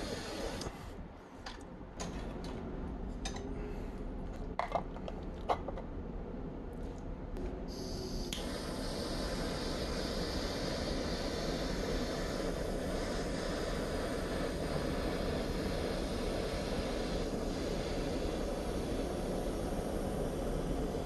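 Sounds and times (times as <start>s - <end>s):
torch flame hissing: 0.0s - 1.0s, 7.6s - 21.0s.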